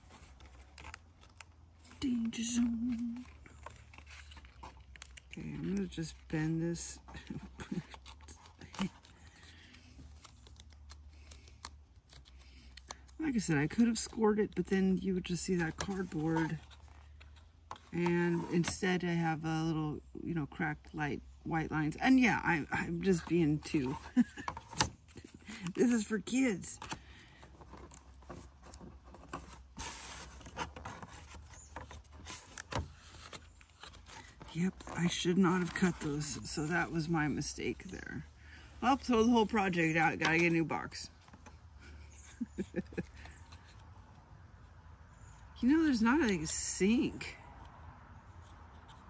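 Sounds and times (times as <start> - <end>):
cardboard rubbing and scraping: 0.0 - 6.3, 13.4 - 18.8, 22.9 - 37.9.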